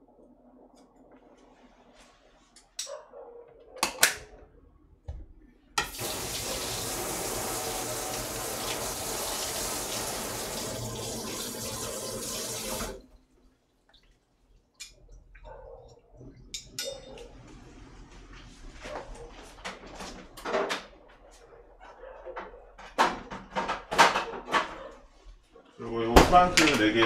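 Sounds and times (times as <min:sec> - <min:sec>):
faucet running: 0:05.8 - 0:13.2.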